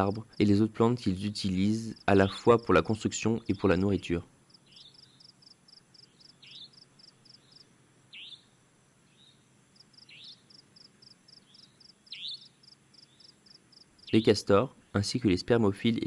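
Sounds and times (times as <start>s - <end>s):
insects chirping high and fast: 4.5s - 8.5s, 9.8s - 14.4s.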